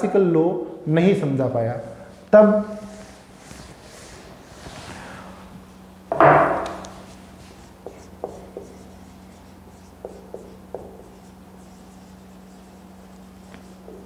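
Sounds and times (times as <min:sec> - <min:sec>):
loud sudden knock: 0:06.1 - 0:06.7
marker tapping on whiteboard: 0:06.1 - 0:07.0, 0:07.8 - 0:09.0, 0:09.8 - 0:11.3, 0:13.4 - 0:14.0.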